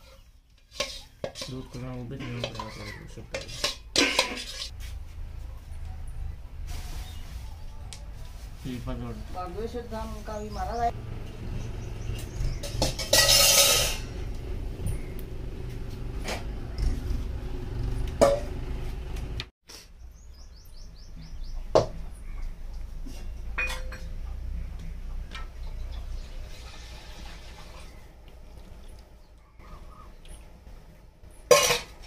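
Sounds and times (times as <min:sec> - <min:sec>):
steel plates clinking: 0:00.6 - 0:04.7, 0:12.6 - 0:14.3, 0:23.1 - 0:24.2, 0:31.4 - 0:32.0
rustling: 0:06.6 - 0:10.5
metallic ring: 0:12.6 - 0:14.2.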